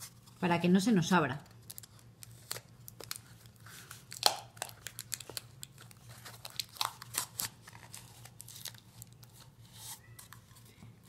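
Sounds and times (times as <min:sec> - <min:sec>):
tape and cardboard crinkling: 0:01.4 - 0:10.8.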